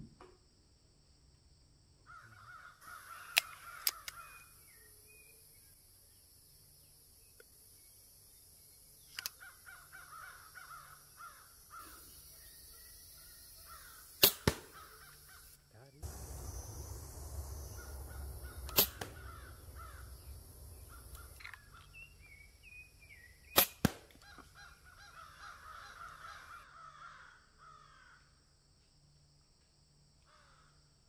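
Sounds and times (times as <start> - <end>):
birds calling: 2.1 - 5.4, 8.9 - 27.1
air pistol shot crack: 14.2 - 15.1, 16.0 - 21.4, 23.6 - 24.2.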